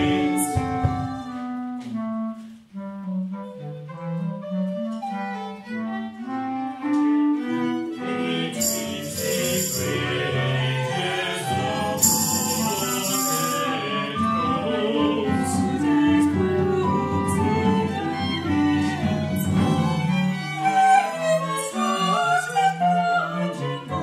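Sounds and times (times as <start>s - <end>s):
chamber ensemble playing: 5.4s - 15.2s
high shimmering percussion: 8.6s - 10.3s, 11.9s - 13.8s.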